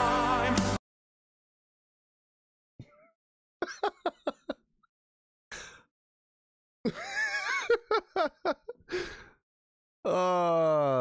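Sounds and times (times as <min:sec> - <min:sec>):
man laughing: 0:03.6 - 0:04.6, 0:06.9 - 0:08.8
sharp breath: 0:08.9 - 0:09.4.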